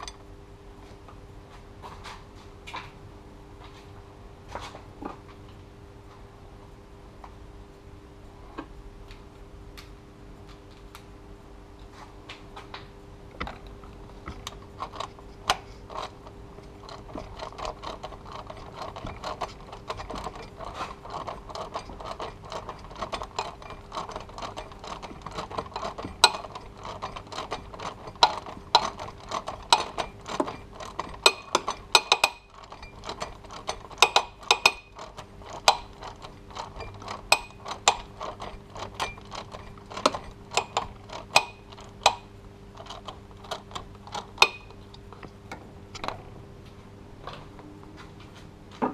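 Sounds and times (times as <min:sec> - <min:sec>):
hand ratchet clicking: 0:14.3 - 0:45.0.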